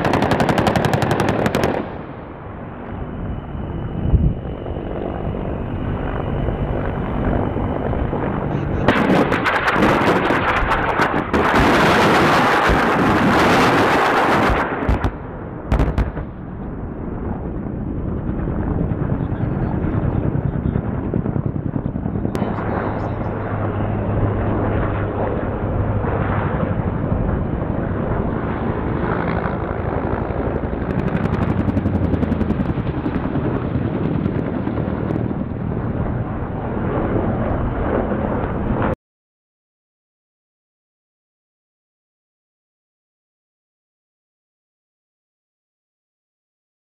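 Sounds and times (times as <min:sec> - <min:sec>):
helicopter rotor beating: 0:00.0 - 0:15.0, 0:15.8 - 0:38.9
loud blast: 0:08.9 - 0:10.5.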